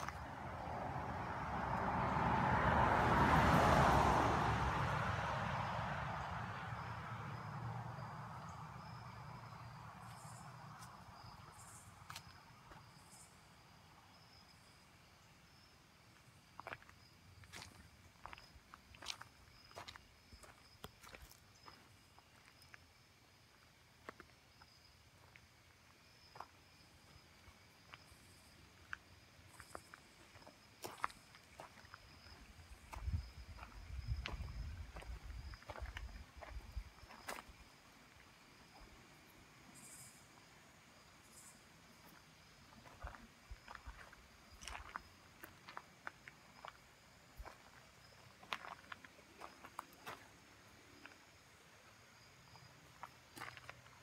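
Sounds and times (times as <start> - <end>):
vehicle passing: 0.0 - 11.2
insects chirping: 0.0 - 54.0.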